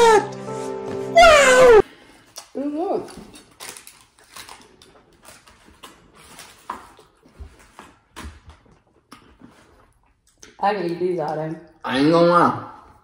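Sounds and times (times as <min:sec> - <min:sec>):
chewing: 0:03.3 - 0:10.6.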